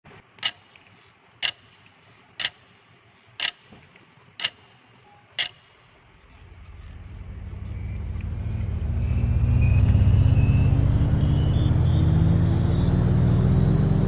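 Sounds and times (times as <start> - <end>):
clock ticking: 0.2 - 8.8
low rumble: 6.4 - 12.6.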